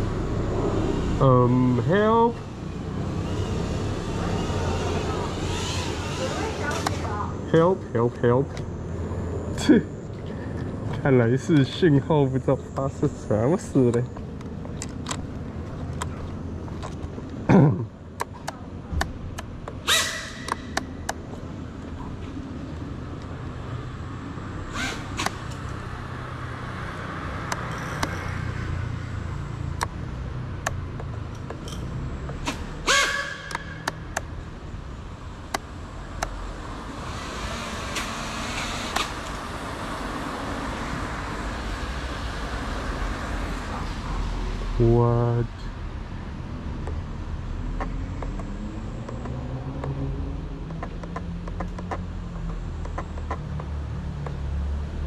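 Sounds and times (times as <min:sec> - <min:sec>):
sharp clicks: 0:33.4 - 0:34.3, 0:50.6 - 0:54.4.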